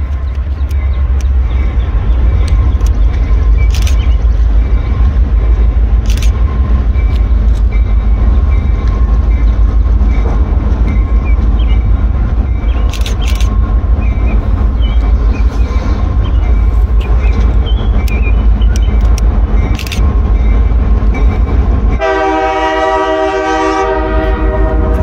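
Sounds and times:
locomotive low rumble: 0:00.0 - 0:25.0
brief clicks: 0:02.4 - 0:04.1, 0:12.8 - 0:13.5.

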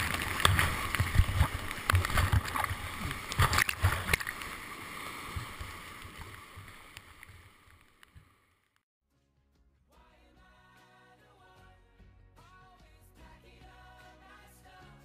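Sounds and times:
whitewater splashing: 0:00.0 - 0:08.3.

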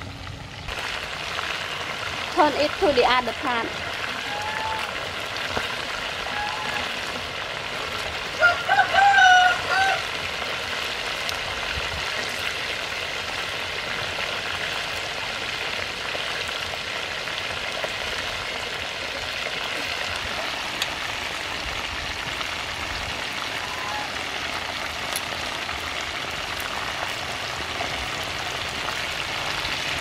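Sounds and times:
oil sizzling and bubbling: 0:00.0 - 0:30.0
short pitched call: 0:04.2 - 0:04.9.

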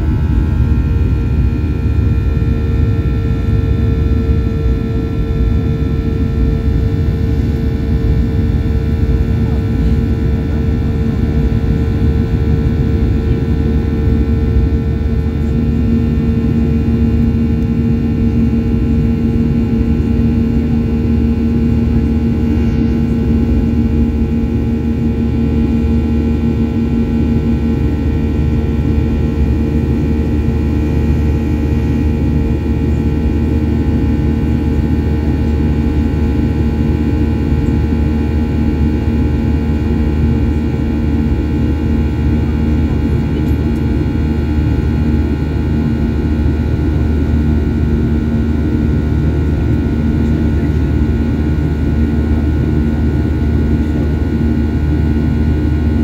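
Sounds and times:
jet engine drone in cabin: 0:00.0 - 0:56.0
higher engine tone: 0:15.4 - 0:26.0.

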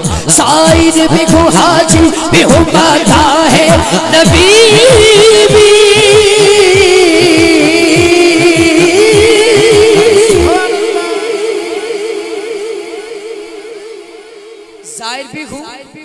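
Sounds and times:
steady drum beats: 0:00.0 - 0:12.6.

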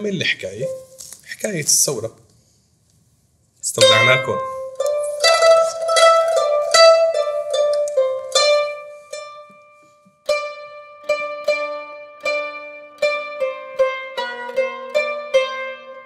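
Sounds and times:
plucked zither notes: 0:00.0 - 0:01.0, 0:03.7 - 0:16.0.

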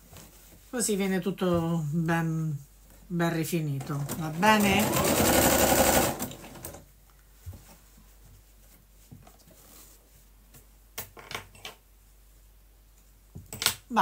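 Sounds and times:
sewing machine stitching: 0:03.9 - 0:06.8.

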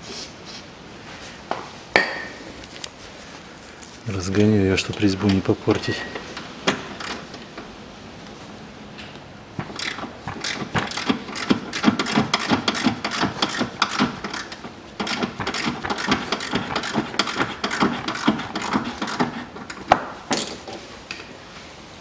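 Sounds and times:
ratchet wrench clicking: 0:09.8 - 0:19.3.

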